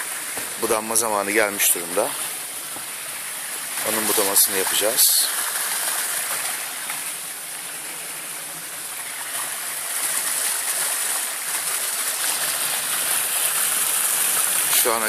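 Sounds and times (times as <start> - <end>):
water spilling over waterfall: 0.0 - 15.0.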